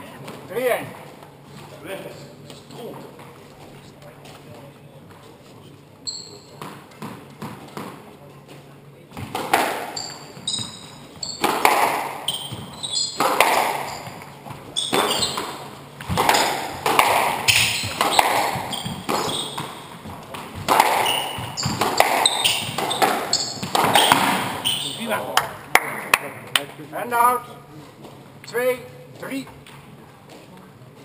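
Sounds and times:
shoes squeaking on wooden floor: 0:06.0 - 0:07.8, 0:09.2 - 0:25.3
squash ball hitting rackets and walls: 0:06.2 - 0:08.2, 0:09.1 - 0:26.3.

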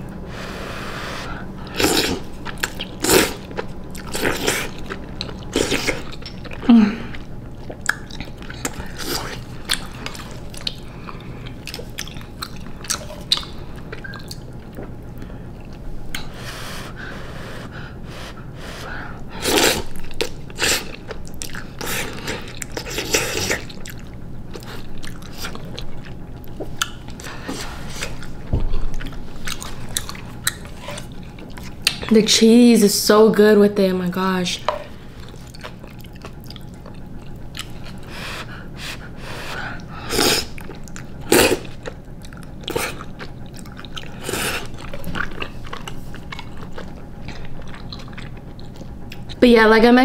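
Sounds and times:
wet chewing: 0:01.6 - 0:16.4, 0:19.4 - 0:32.1, 0:35.0 - 0:49.4
person slurping noodles: 0:38.3 - 0:40.5.

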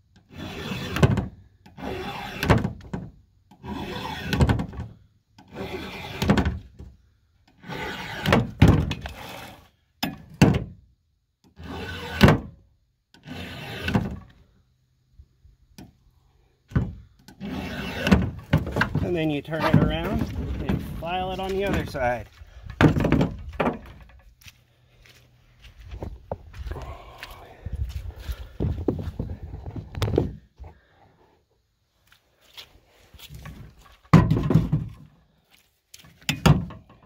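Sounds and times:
file rasping on chainsaw chain: 0:00.3 - 0:01.0, 0:01.8 - 0:02.4, 0:03.6 - 0:04.4, 0:05.5 - 0:06.2, 0:07.6 - 0:08.3, 0:09.0 - 0:09.7, 0:13.2 - 0:13.9, 0:17.4 - 0:18.1.

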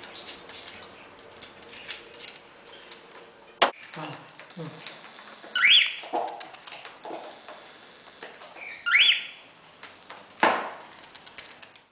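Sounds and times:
cockatiel whistled calls: 0:05.6 - 0:06.0, 0:08.6 - 0:09.4.

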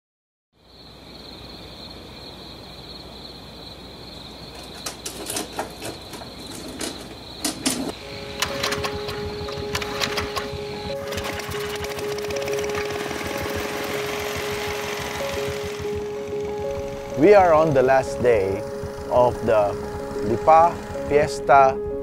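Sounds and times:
clicks and knocks: 0:04.6 - 0:11.4
small engine starting and running: 0:06.6 - 0:21.4
high-pitched drone: 0:07.9 - 0:22.0.

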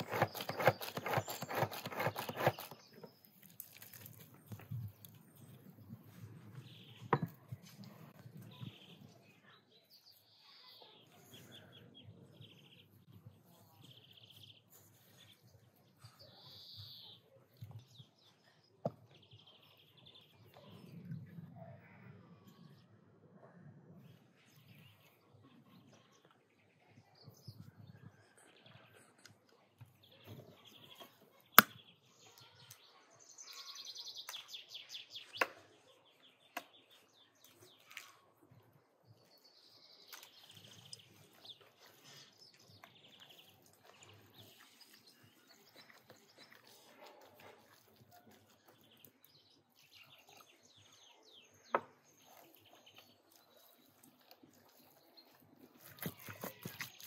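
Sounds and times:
small birds chirping: 0:00.0 - 0:22.9, 0:24.0 - 0:57.0
minced meat mixed in bowl: 0:40.1 - 0:50.7, 0:52.2 - 0:57.0.

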